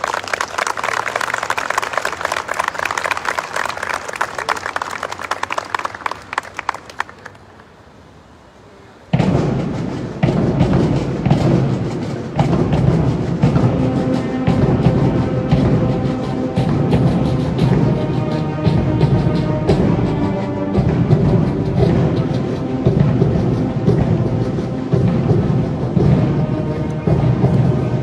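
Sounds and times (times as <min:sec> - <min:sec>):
audience applause: 0:00.0 - 0:07.8
concert band with brass and drums: 0:08.9 - 0:28.0.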